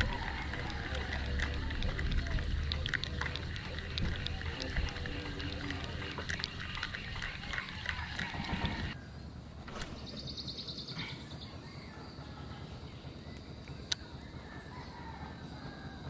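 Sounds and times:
river background wash: 0.0 - 11.6.

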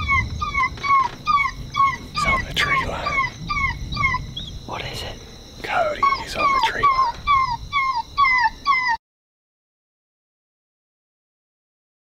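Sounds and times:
electronic whining distress cry: 0.0 - 4.7, 5.8 - 8.9.

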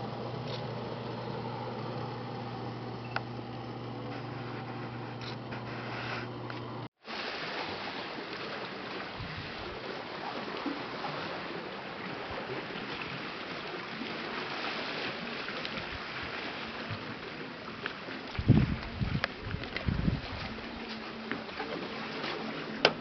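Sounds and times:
lagoon water lapping: 7.0 - 23.0.

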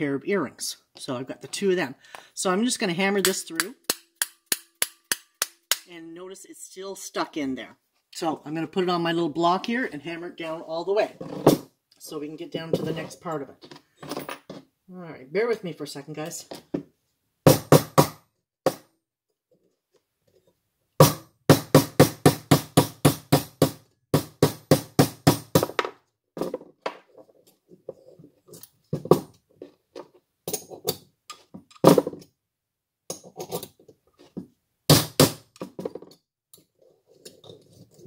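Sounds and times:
hammer striking metal punch: 3.2 - 5.9.

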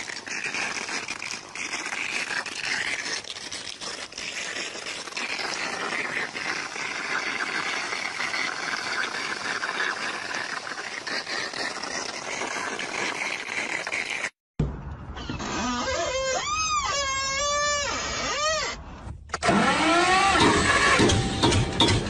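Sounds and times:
crackling water spatter: 0.0 - 14.4
water running off a roof: 0.0 - 14.4.

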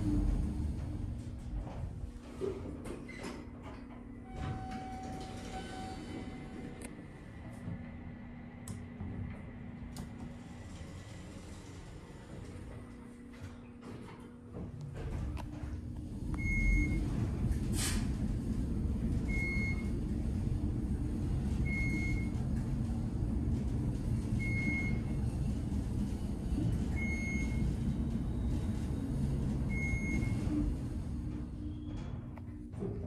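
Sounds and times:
elevator low rumble: 0.0 - 33.0
elevator floor-passing beep: 4.3 - 6.6, 16.2 - 17.3, 19.0 - 20.6, 21.2 - 22.6, 24.0 - 25.3, 26.6 - 32.1.

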